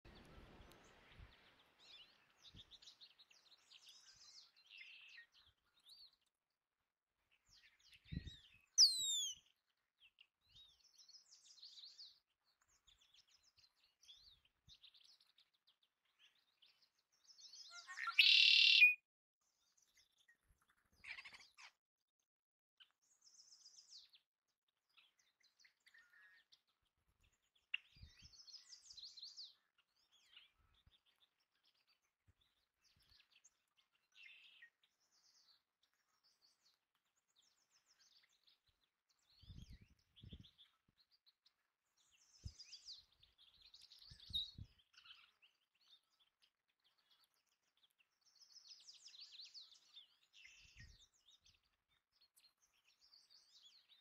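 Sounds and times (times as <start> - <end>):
birds chirping faintly: 7.4 - 9.4
ground squirrel squeak: 8.8 - 9.4.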